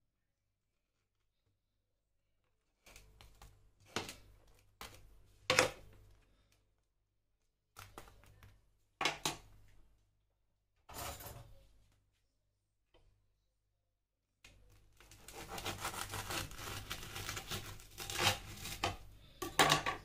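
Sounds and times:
toast crunching: 14.6 - 19.4
knife scraping toast: 15.1 - 19.0.

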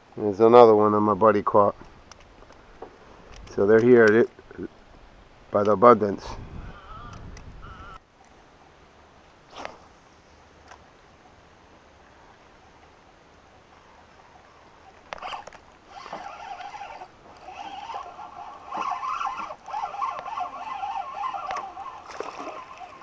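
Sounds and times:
fishing reel whirring: 14.4 - 23.0
reel click: 15.0 - 23.0.

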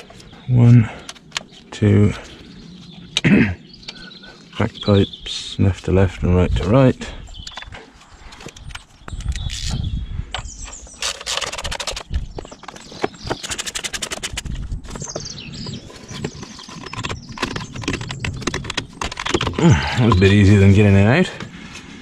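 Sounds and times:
knocks and scrapes of parts: 7.4 - 22.0
quick runs of clicks: 10.4 - 20.4.

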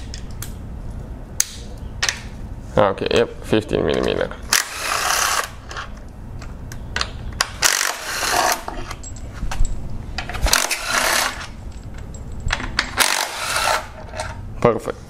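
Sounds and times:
cordless driver spinning bolts: 7.6 - 8.8, 10.4 - 11.5, 12.6 - 14.3
metallic clinks of socket and bolts: 8.7 - 10.3.

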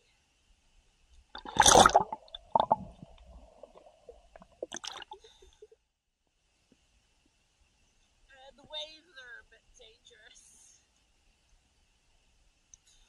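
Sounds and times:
water splashing and gurgling: 1.4 - 5.5
muffled underwater sloshing: 1.4 - 5.6.

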